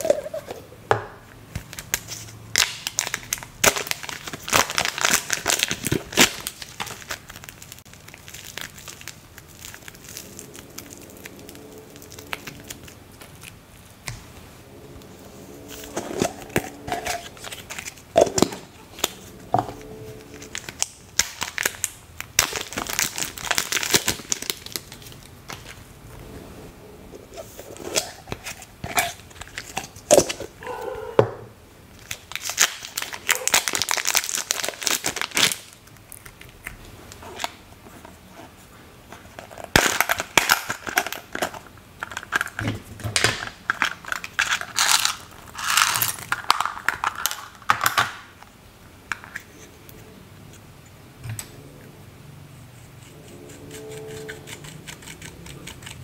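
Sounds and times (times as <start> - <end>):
plastic packaging crinkling and tearing: 1.6 - 14.1, 15.7 - 25.8, 32.0 - 37.6, 39.1 - 48.0
metal tool scraping eyeshadow: 52.8 - 56.0.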